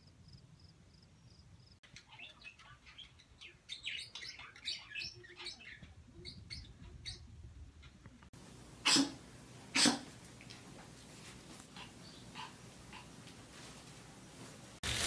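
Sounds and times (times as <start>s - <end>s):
high-pitched bird chirps: 1.8s - 7.3s.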